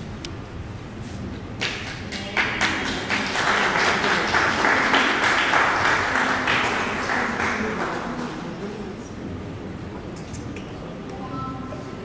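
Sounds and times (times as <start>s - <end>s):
audience clapping: 1.6s - 8.4s.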